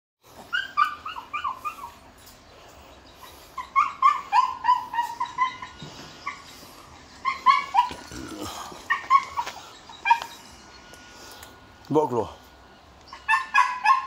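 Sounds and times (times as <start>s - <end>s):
dog whining in high yips: 0.4s - 2.0s, 3.6s - 6.5s, 7.2s - 8.1s, 8.8s - 10.4s, 13.1s - 14.0s.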